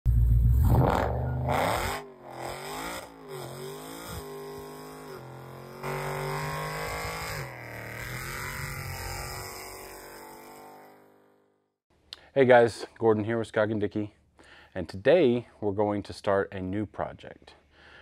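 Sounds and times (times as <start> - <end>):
car engine revving hard: 0.5 - 10.8.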